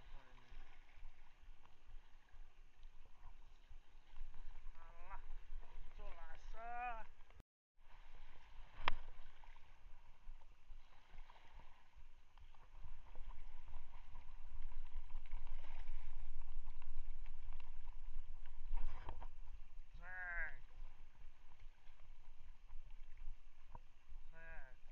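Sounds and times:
sea water lapping: 0:00.0 - 0:24.9
wind rumble on microphone: 0:07.9 - 0:24.9.

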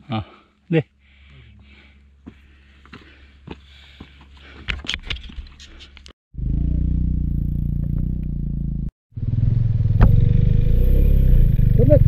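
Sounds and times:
motorcycle engine running: 0:06.4 - 0:12.0.

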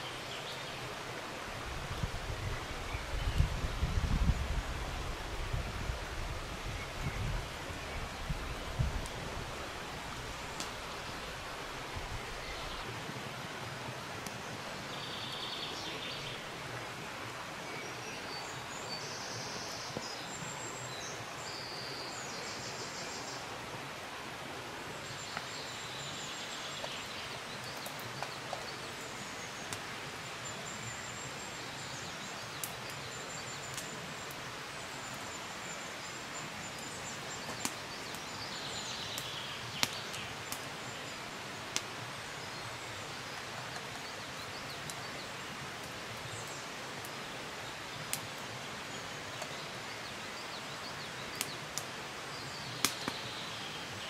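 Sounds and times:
small birds singing: 0:00.0 - 0:01.0, 0:10.0 - 0:13.0, 0:14.2 - 0:23.6, 0:24.9 - 0:54.0
steady woodland rush: 0:00.0 - 0:54.0.

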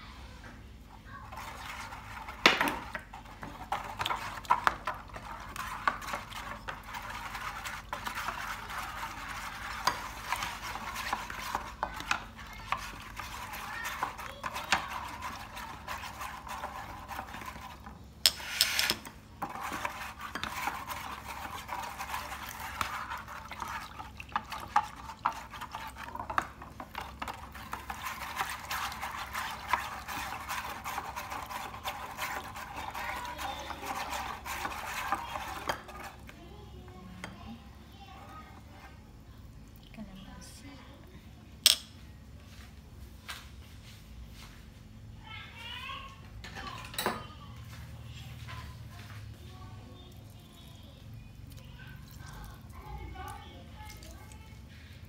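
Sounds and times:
whisk swishing in liquid: 0:01.1 - 0:38.6.

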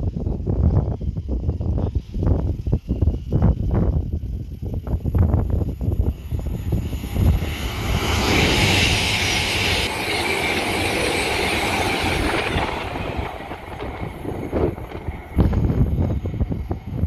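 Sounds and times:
wind buffeting microphone: 0:00.0 - 0:17.0
train passing at speed: 0:04.1 - 0:17.0.

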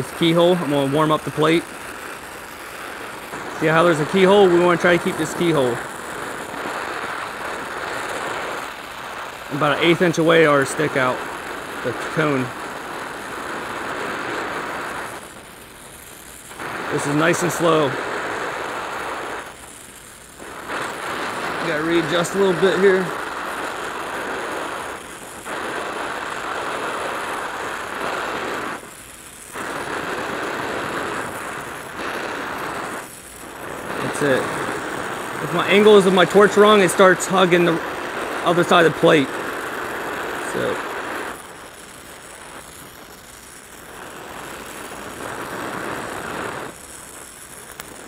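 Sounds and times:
welding torch hissing: 0:00.0 - 0:48.0.

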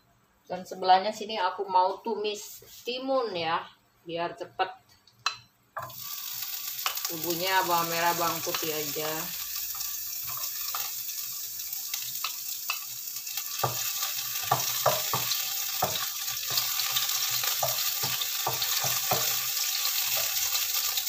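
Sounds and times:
oil sizzling in a frying pan: 0:05.8 - 0:21.0.

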